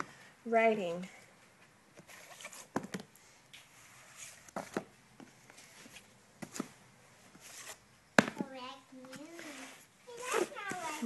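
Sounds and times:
books rustling: 2.0 - 11.0
books knocking on wooden table: 8.2 - 8.5.

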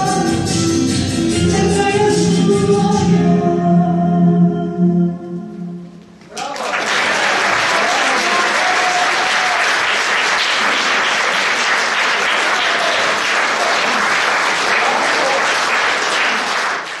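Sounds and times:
audience applauding: 6.3 - 17.0.

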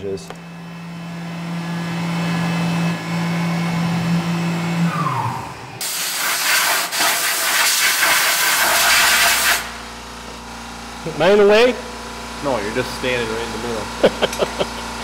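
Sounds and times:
cnc mill spindle whine: 0.0 - 5.8
loud steady hiss: 5.8 - 9.8.

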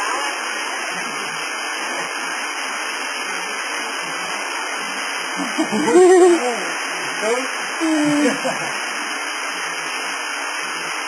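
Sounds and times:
waterfall rushing: 0.0 - 11.0
person hooting call: 5.4 - 6.7, 7.8 - 8.7.

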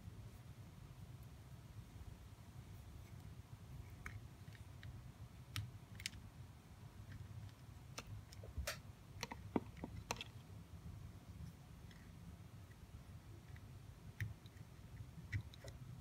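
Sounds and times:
wires clicking into breadboard: 4.0 - 6.2.

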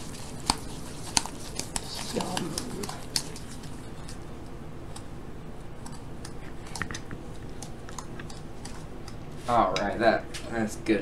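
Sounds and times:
utensil scraping a mixing bowl: 0.0 - 4.3.

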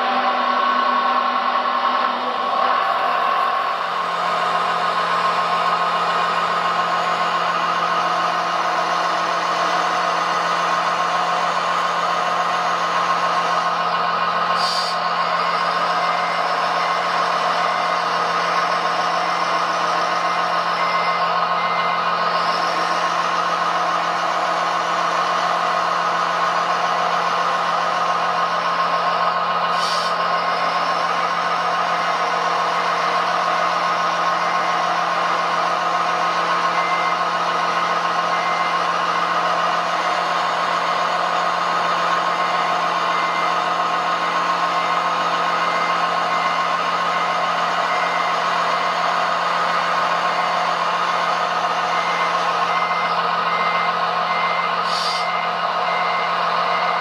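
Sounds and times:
engine-like drone: 0.0 - 57.0
reversing beeps: 14.6 - 23.4, 31.9 - 57.0.

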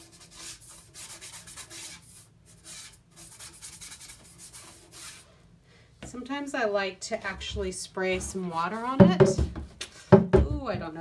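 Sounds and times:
paintbrush scrubbing strokes: 0.0 - 5.4.

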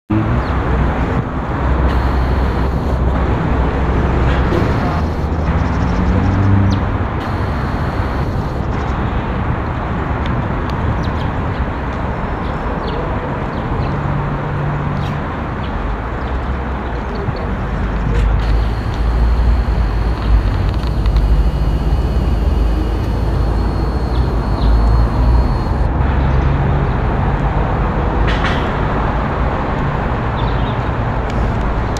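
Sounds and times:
city traffic rumble: 0.1 - 31.9.

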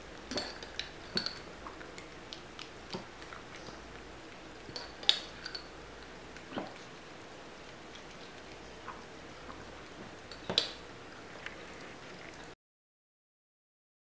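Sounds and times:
dogs licking: 1.1 - 10.2.

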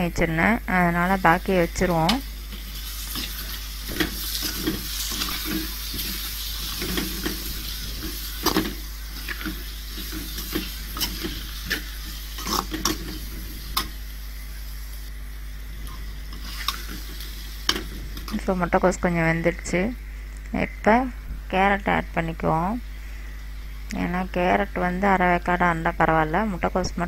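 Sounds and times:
cabbage sizzling in oil: 0.1 - 20.3
metal ladle scraping pan: 3.0 - 13.9.

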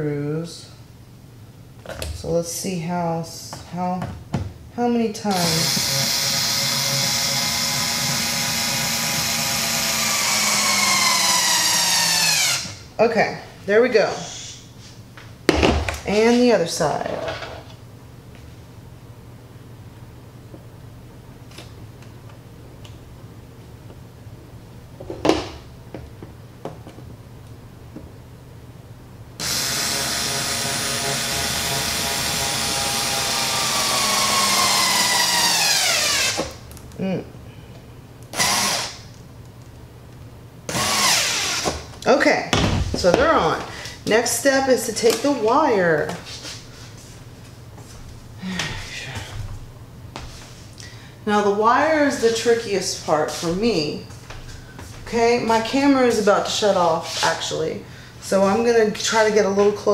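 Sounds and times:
electric screwdriver whine: 5.3 - 12.7, 29.4 - 36.5, 38.3 - 39.0, 40.7 - 41.8
cordless screwdriver whining: 38.3 - 39.0.

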